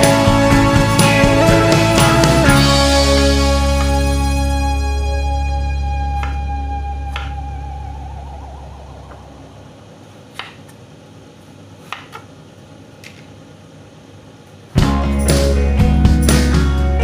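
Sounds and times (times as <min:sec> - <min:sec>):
background music: 0:00.0 - 0:09.7, 0:14.8 - 0:17.0.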